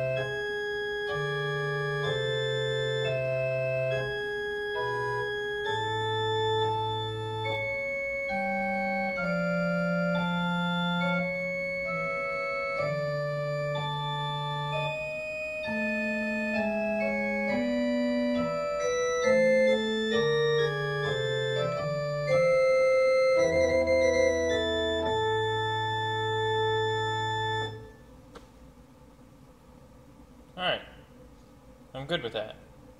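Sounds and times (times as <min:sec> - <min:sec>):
organ playing sustained chords: 0:00.0 - 0:31.4.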